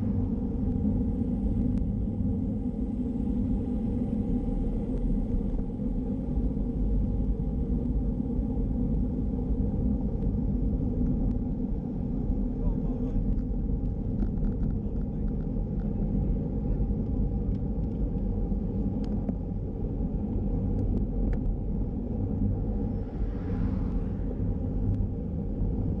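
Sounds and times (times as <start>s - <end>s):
wind buffeting microphone: 0.0s - 26.0s
light ticks from bike: 13.3s - 16.2s, 17.0s - 19.5s.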